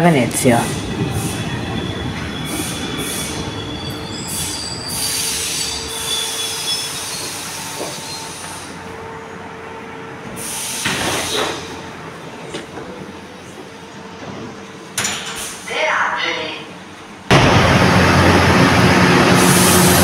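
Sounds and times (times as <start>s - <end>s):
train braking to a stop: 0.4s - 8.9s, 10.2s - 11.9s, 17.5s - 20.0s
wheel and brake squeals: 1.2s - 8.5s
rush of air from doors: 10.3s - 11.7s.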